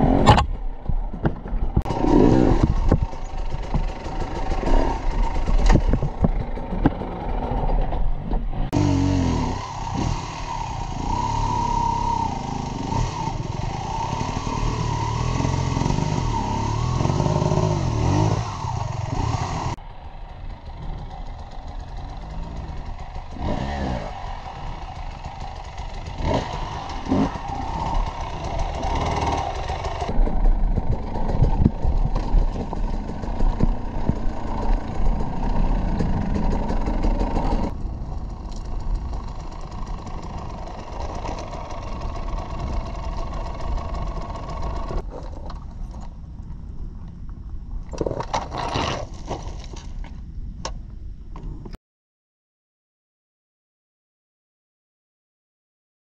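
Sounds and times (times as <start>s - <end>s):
motorcycle engine revving: 0.0s - 45.1s
rocks knocking and clattering: 47.8s - 50.2s.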